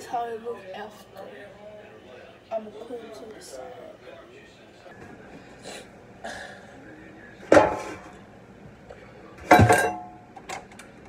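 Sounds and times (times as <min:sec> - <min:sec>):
metal cookware clanking: 0:07.5 - 0:08.2, 0:09.4 - 0:10.2.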